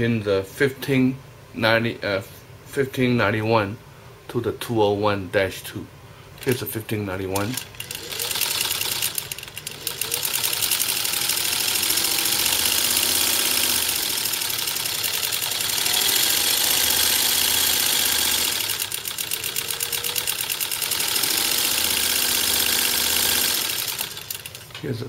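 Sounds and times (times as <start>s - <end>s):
sewing machine clattering: 7.4s - 24.8s.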